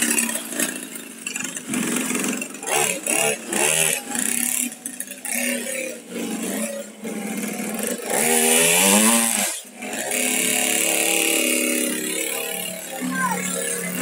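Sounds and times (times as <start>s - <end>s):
small petrol engine revving: 0.0s - 14.0s.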